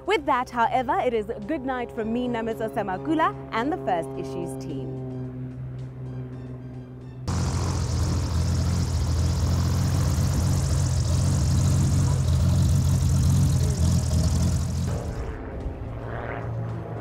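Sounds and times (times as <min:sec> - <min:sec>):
propeller plane engine drone: 0:03.0 - 0:17.0
spinning propeller hiss: 0:07.3 - 0:15.3.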